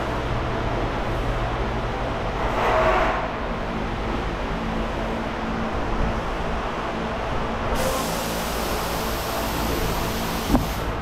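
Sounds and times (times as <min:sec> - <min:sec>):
low rumble with faint hum: 0:00.0 - 0:11.0
steady hiss: 0:07.7 - 0:11.0.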